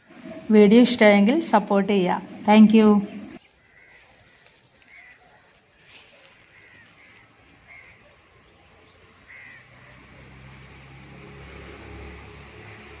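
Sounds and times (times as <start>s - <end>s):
low rumble: 0.0s - 3.4s
faint outdoor background noise: 0.0s - 13.0s
crow cawing: 9.3s - 9.7s.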